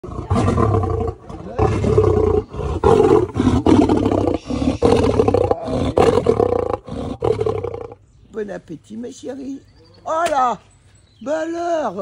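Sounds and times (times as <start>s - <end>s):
lion roaring: 0.0s - 8.0s.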